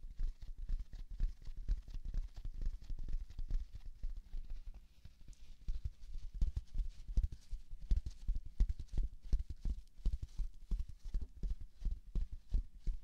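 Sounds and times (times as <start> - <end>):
fingers tapping foam sponge: 5.6 - 13.0.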